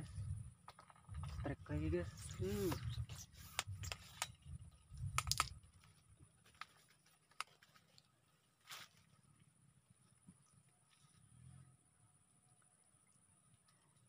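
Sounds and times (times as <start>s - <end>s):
fishing rod and line clicks: 3.5s - 5.9s.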